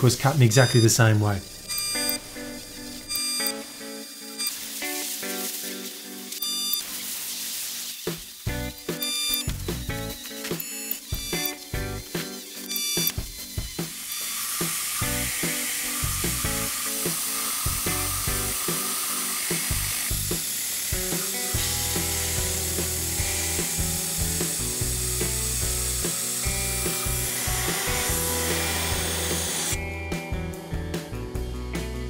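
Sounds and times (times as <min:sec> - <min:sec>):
background music: 0:08.3 - 0:32.0
compressed air hissing: 0:13.8 - 0:29.8.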